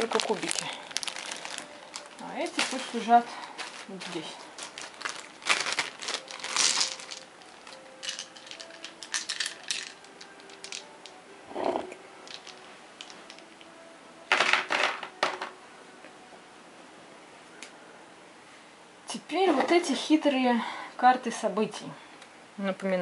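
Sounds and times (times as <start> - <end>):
game cubes clattering on cardboard: 6.3 - 7.2, 8.0 - 10.8.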